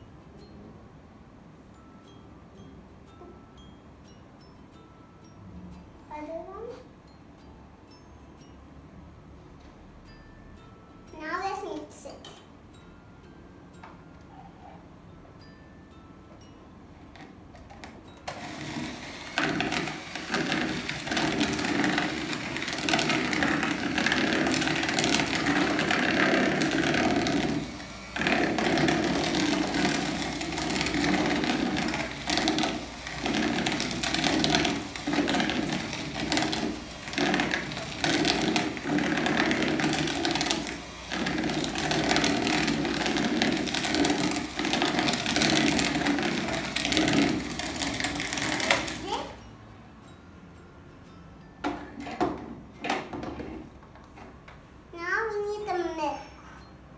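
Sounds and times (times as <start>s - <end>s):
electric hand mixer running: 18.3s - 49.4s.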